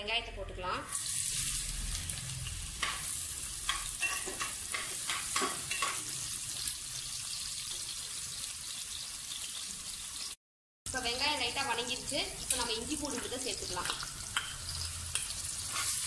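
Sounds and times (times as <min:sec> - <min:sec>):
onions sizzling in hot oil: 0:00.9 - 0:16.0
spatula scraping a pot: 0:14.4 - 0:16.0.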